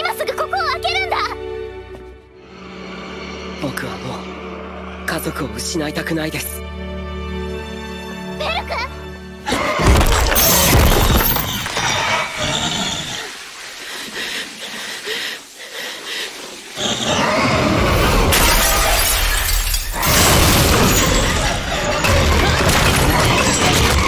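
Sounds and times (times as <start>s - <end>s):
crashing and shattering: 9.8s - 12.0s, 18.2s - 24.0s.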